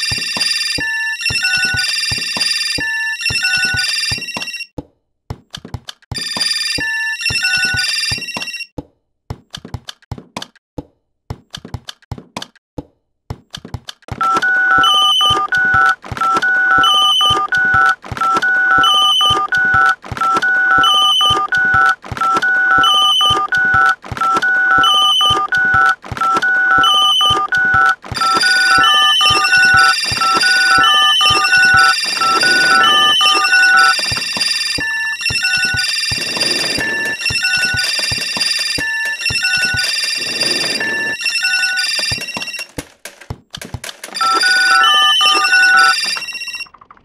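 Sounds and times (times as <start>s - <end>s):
telephone ringing tones: 0.0s - 4.7s, 6.2s - 8.7s, 14.2s - 42.8s, 44.1s - 47.0s
sharp clicks: 13.5s - 40.8s, 42.0s - 47.0s
high beeping tones: 14.2s - 42.8s, 44.2s - 46.8s.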